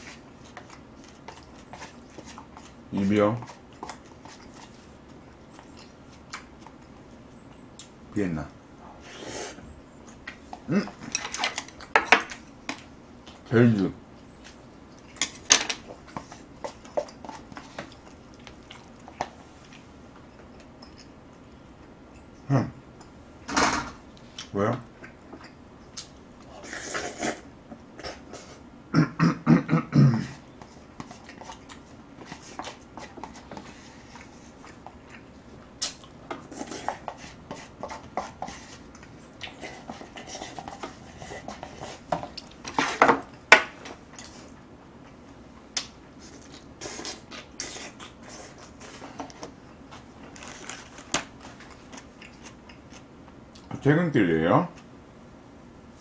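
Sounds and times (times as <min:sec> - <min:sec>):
chopsticks scraping paper cup: 0:39.5 - 0:42.2.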